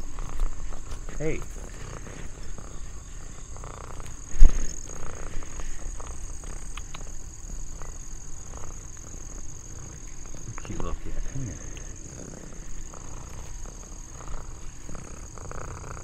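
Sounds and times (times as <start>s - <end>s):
high-pitched insect chorus: 0.0s - 16.0s
faint clicks: 6.0s - 7.1s.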